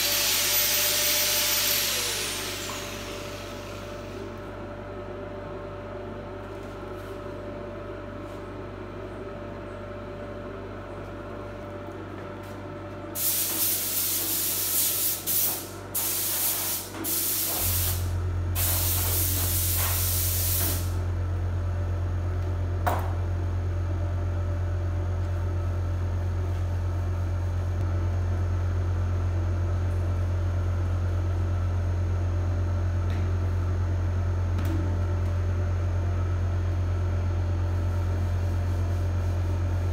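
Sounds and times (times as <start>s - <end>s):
low machine hum: 0.0s - 39.9s
spray gun hissing: 13.2s - 21.0s.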